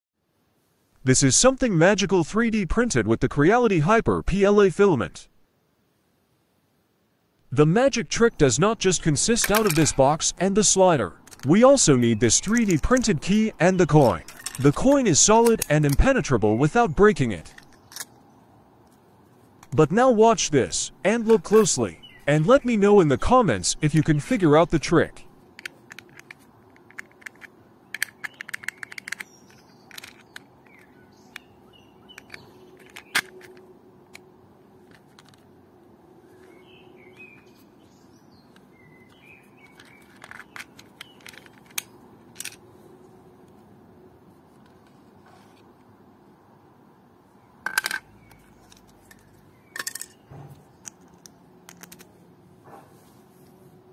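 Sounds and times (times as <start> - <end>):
plastic parts clicking and scraping: 8.9 - 16.3, 17.2 - 18.2, 24.0 - 35.6, 38.5 - 43.6, 47.6 - 52.2
plastic parts clattering: 9.4 - 10.3, 11.1 - 16.0, 17.4 - 18.1, 25.5 - 31.4, 32.1 - 34.2, 34.8 - 35.5, 39.6 - 42.6, 47.6 - 52.2.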